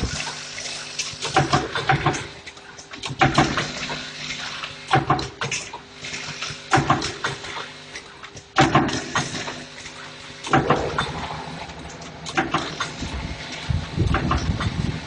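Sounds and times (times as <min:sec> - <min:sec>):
machine hum: 0:10.0 - 0:15.0
welding machine clacking: 0:10.4 - 0:15.0.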